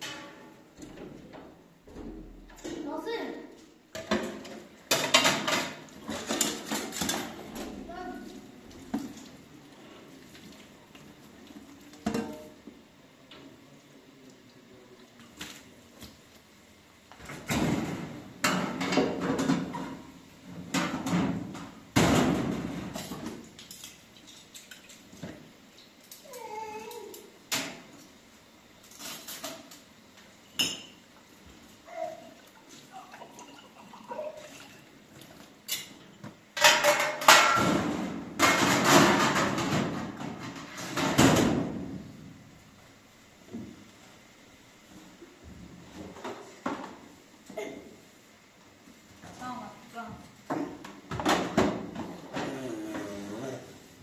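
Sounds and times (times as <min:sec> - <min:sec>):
metal dishes clattering and scraping: 0:00.0 - 0:00.6, 0:04.0 - 0:07.7, 0:18.4 - 0:20.1, 0:36.6 - 0:41.5.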